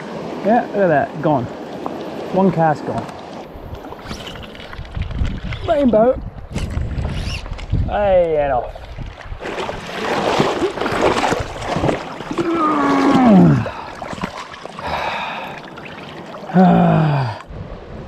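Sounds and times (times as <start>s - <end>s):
person groaning: 12.4s - 13.8s, 16.5s - 17.4s.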